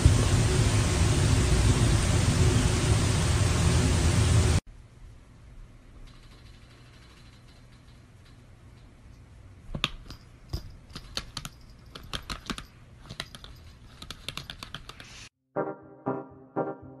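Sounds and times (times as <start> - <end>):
low hum: 0.0 - 6.6
laptop keys clicking: 9.8 - 15.1.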